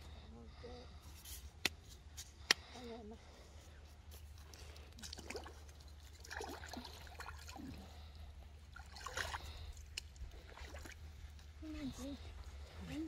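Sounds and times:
shallow water splashing and trickling: 4.0s - 13.0s.

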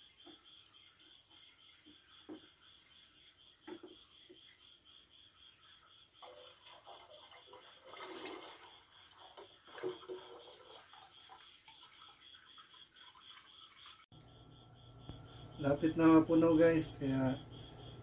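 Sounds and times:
juice trickling into bottle: 6.2s - 14.0s.

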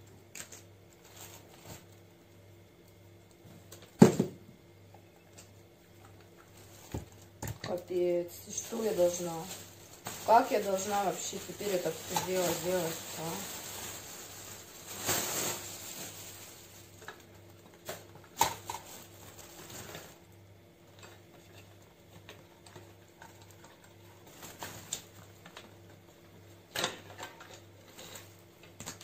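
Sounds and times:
plastic wrapping rustling: 0.3s - 2.0s, 6.4s - 20.3s, 20.9s - 26.3s.

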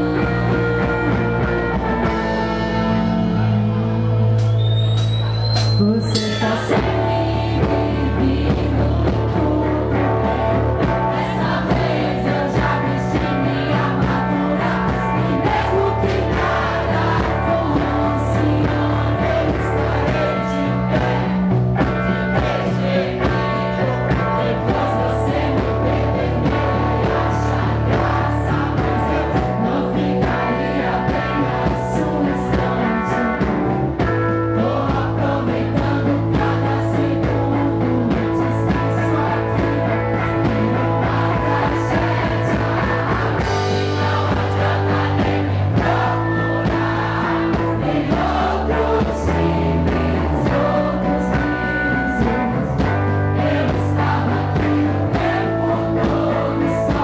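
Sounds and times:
woman singing into microphone: 0.0s - 1.7s, 5.8s - 57.0s
live rock band playing: 0.0s - 57.0s.

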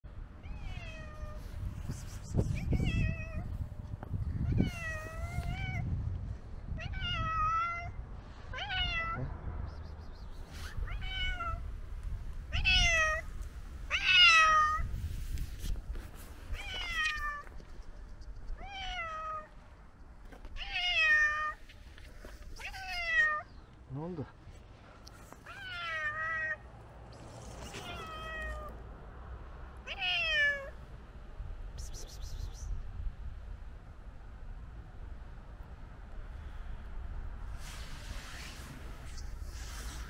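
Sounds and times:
cat meowing: 0.4s - 1.4s, 4.5s - 5.8s, 6.8s - 9.2s, 10.7s - 11.7s, 12.5s - 13.3s, 13.9s - 14.9s, 16.5s - 17.5s, 25.4s - 26.6s, 27.6s - 28.8s, 29.8s - 30.8s.

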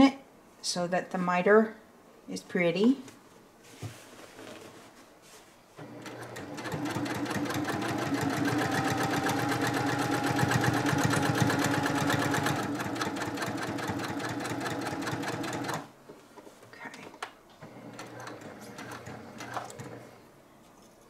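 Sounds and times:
sewing machine stitching: 5.8s - 15.9s, 17.6s - 20.2s.

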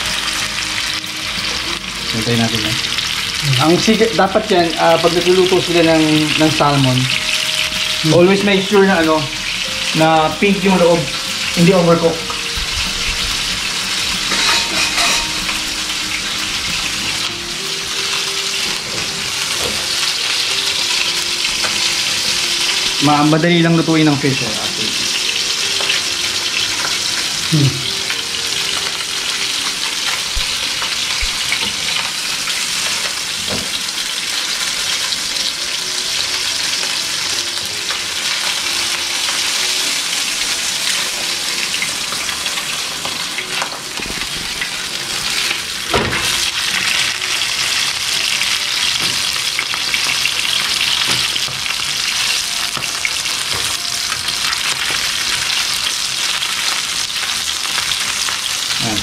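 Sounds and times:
fish sizzling in frying pan: 0.0s - 59.0s
metal spoon clinking in pan: 14.3s - 15.4s.

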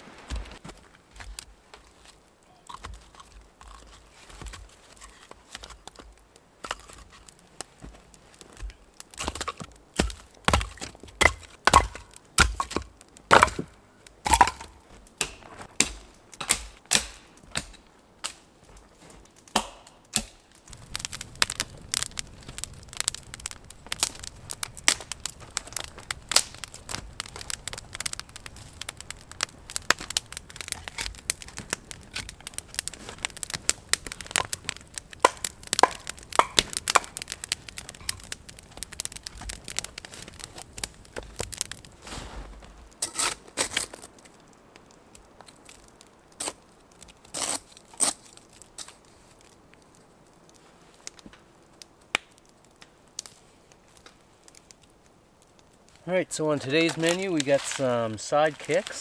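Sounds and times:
wood fire crackling: 0.0s - 59.0s
dry branches snapping: 0.2s - 56.0s, 56.6s - 59.0s.

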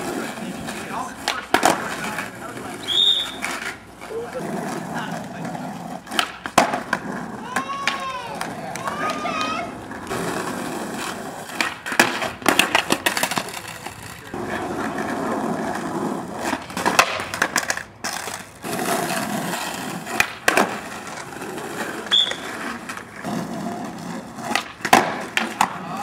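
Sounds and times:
skateboard wheels rolling on asphalt: 0.0s - 26.0s
skateboard snapping and landing: 1.2s - 2.3s, 6.0s - 13.9s, 16.4s - 23.4s, 24.0s - 26.0s.

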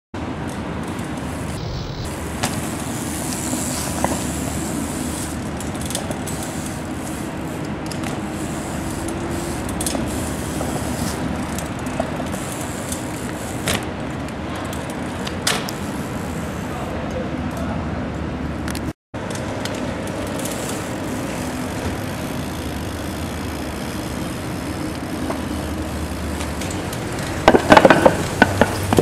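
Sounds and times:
road traffic rumble: 0.2s - 29.0s.

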